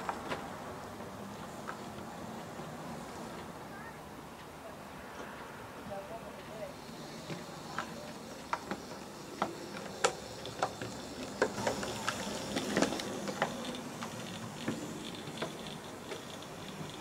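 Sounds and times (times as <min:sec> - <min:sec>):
low running noise: 0:00.0 - 0:17.0
model train wheels clicking: 0:06.1 - 0:17.0.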